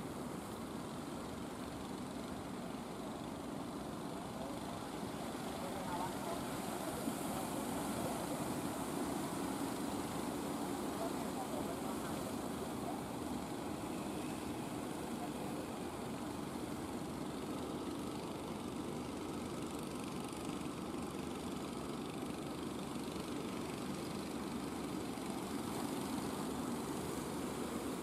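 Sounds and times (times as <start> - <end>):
boat engines droning: 0.0 - 28.0.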